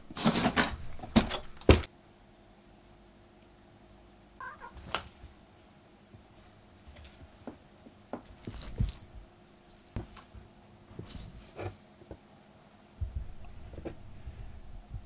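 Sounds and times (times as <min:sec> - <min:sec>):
metal collar charm jingling: 0:08.5 - 0:10.0.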